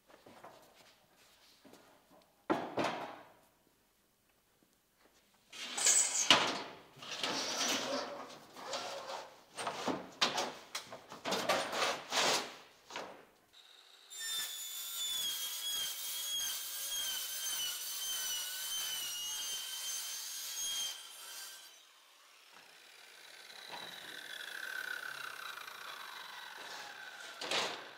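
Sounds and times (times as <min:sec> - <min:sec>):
rasping sawing strokes: 0:14.2 - 0:27.4
power tool whining: 0:21.9 - 0:27.9.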